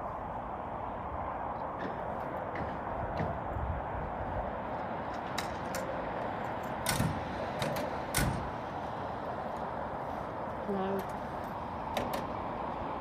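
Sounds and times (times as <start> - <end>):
door and kit clicks and clunks: 6.6 - 8.5.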